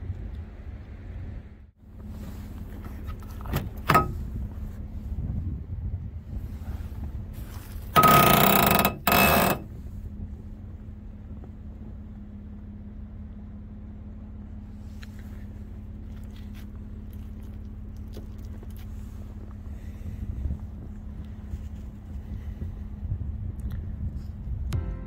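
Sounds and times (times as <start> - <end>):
truck engine idling: 1.8 - 5.3, 6.4 - 23.3
harsh ringing bursts: 8.0 - 9.7.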